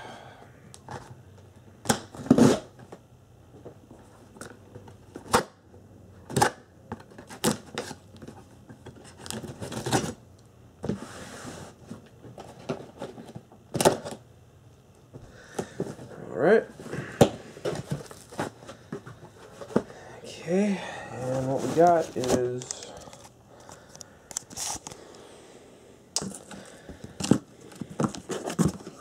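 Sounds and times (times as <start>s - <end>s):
tape tearing off cardboard: 1.9s - 2.7s.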